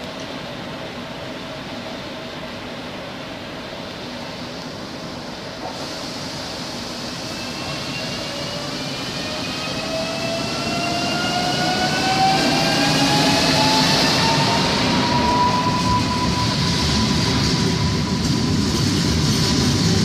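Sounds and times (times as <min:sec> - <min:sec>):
electric train traction whine: 0:05.1 - 0:20.0.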